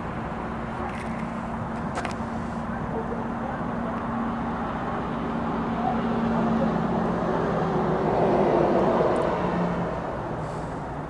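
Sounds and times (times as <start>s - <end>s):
vehicle passing by: 3.8s - 11.0s.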